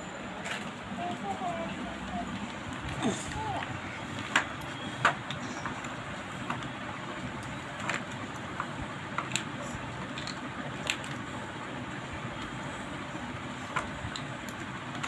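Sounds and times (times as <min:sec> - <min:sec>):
steady background noise: 0:00.0 - 0:15.0
plastic toys clicking: 0:02.2 - 0:11.3, 0:13.7 - 0:15.0.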